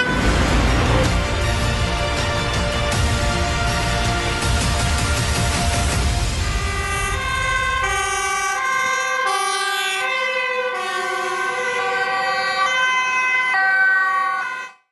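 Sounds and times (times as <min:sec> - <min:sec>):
two-tone sirens: 0:00.0 - 0:00.6, 0:06.2 - 0:14.9
deep rumble: 0:00.0 - 0:08.2.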